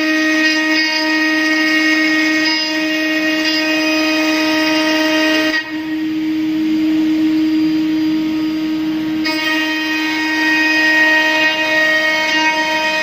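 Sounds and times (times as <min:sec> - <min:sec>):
milling machine cutter whine: 0:00.0 - 0:13.0.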